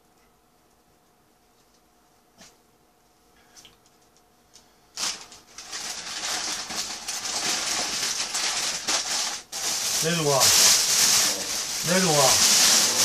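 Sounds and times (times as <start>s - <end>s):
food wrapping crinkling: 5.0s - 13.0s.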